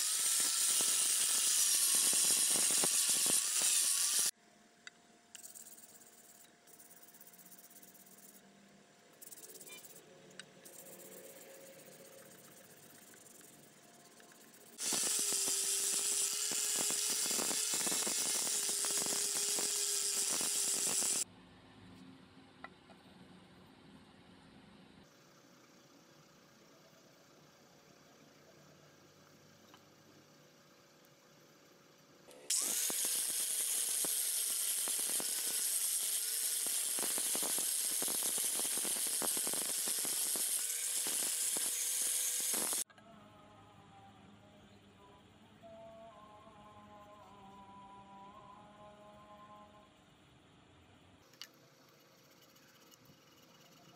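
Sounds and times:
angle grinder motor whine: 0.0s - 4.3s, 14.7s - 21.2s, 32.4s - 42.9s
grinding disc scraping metal: 14.1s - 21.2s, 32.5s - 42.8s.

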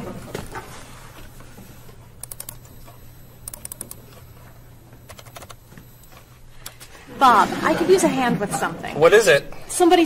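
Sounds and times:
laptop keyboard typing: 2.2s - 2.7s, 3.4s - 4.2s, 5.0s - 6.2s.

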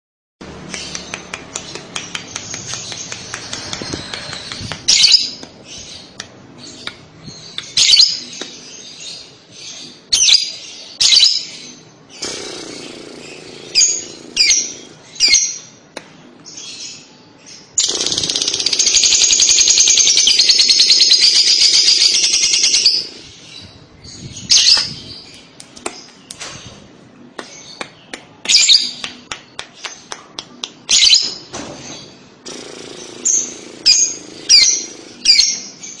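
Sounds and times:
bird high chattering trill: 17.8s - 23.3s.

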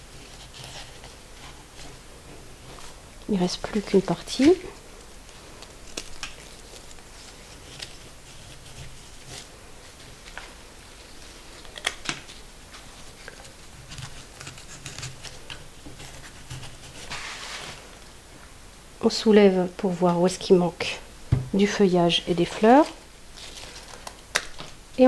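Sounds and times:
leaf rustling: 0.0s - 18.6s, 21.3s - 24.8s
stems clicking and snapping: 5.2s - 7.1s, 11.6s - 16.1s, 23.8s - 24.7s.

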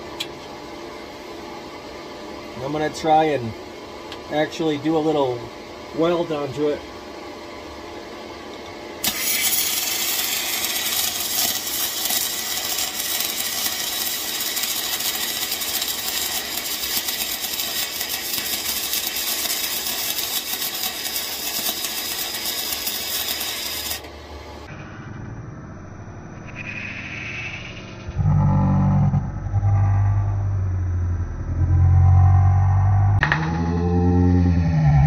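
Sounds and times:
welding arc crackling hiss: 9.0s - 24.7s.

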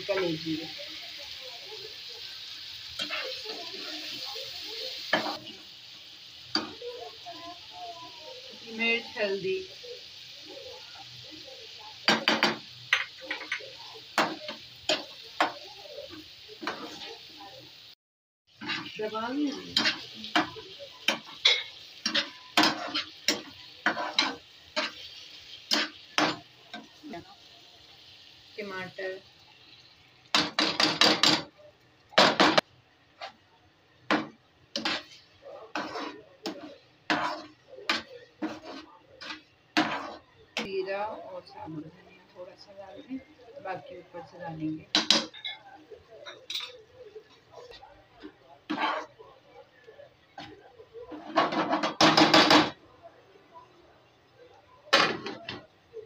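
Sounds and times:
frying sizzle: 0.0s - 56.0s
metal spatula scraping pan: 18.6s - 25.1s, 34.1s - 40.3s, 48.7s - 49.2s
plastic spatula scraping frying pan: 34.8s - 37.6s, 38.3s - 40.2s.

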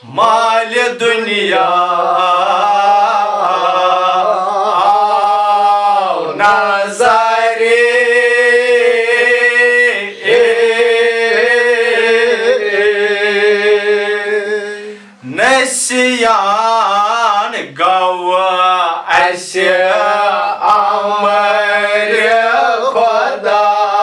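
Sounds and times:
man chanting unaccompanied: 0.0s - 24.0s.

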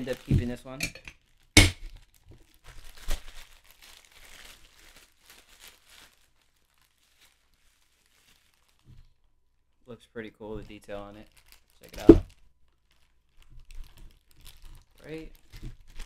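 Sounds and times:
plastic wrap crinkling: 0.0s - 16.0s
sharp knock: 1.6s - 1.9s.

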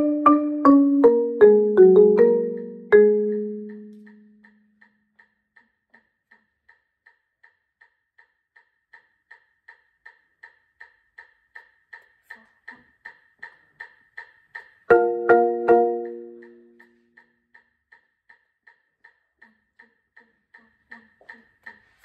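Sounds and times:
marimba chord ringing: 0.0s - 4.2s, 14.9s - 16.8s
even clicking beat: 0.0s - 5.4s, 8.6s - 22.0s.

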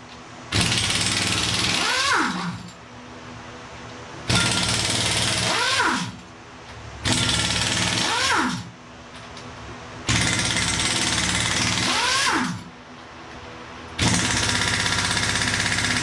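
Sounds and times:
pneumatic impact wrench hammering: 0.5s - 2.8s, 4.3s - 6.2s, 7.0s - 8.7s, 10.1s - 12.7s, 14.0s - 16.0s
air compressor humming: 14.0s - 16.0s.

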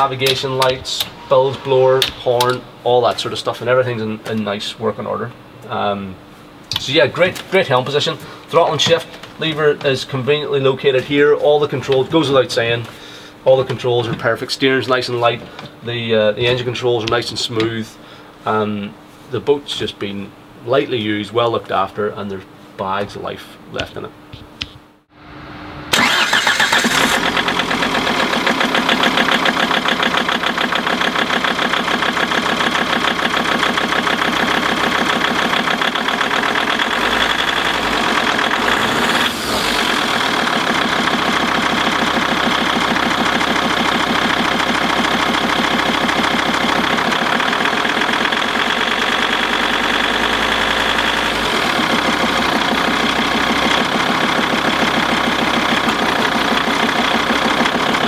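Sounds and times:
marine diesel engine starting and idling: 25.9s - 58.0s.

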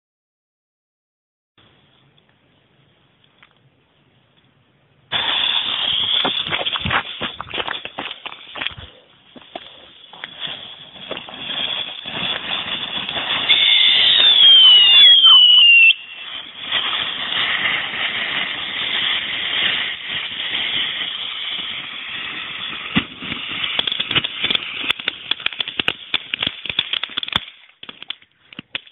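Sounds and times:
falling firework whistles: 5.1s - 7.3s, 10.0s - 26.9s
firework fountain hissing: 5.1s - 8.6s, 9.3s - 28.0s
crackling pops: 9.4s - 28.9s.

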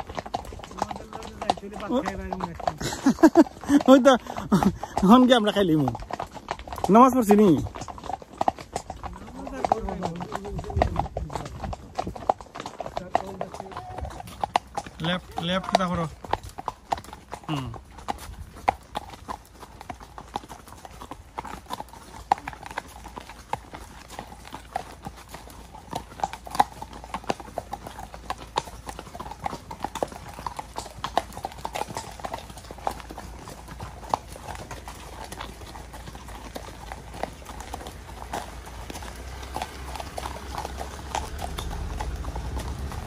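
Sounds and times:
horse hooves on tarmac: 0.0s - 43.0s.

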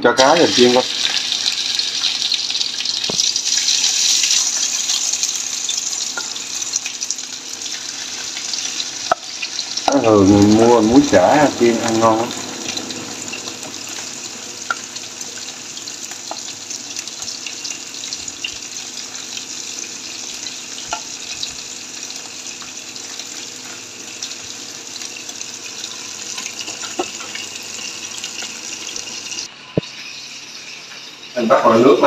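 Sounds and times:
fish frying in hot oil: 0.2s - 32.0s
oil popping: 0.6s - 9.9s.

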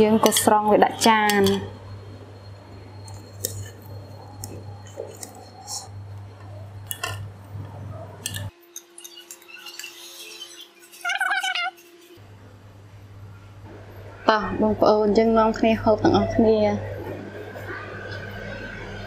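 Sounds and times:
metal ladle clinking on pot: 1.2s - 1.7s.

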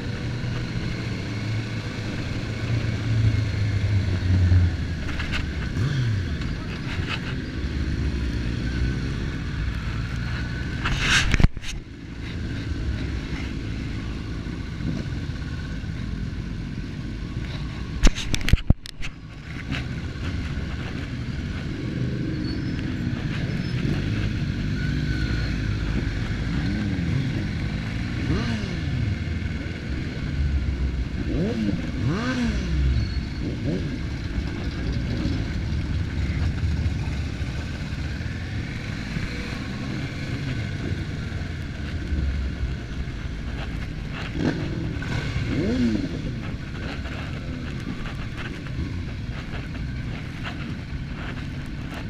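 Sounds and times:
motorcycle engine revving: 0.0s - 52.0s
wind rumble: 8.0s - 52.0s.

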